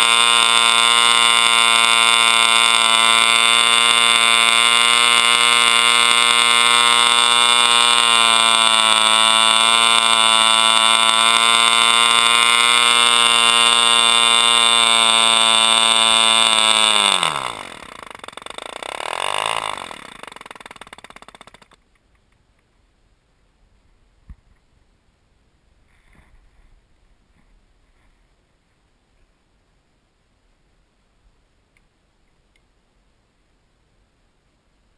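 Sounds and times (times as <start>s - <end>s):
propeller winding down: 0.0s - 21.8s.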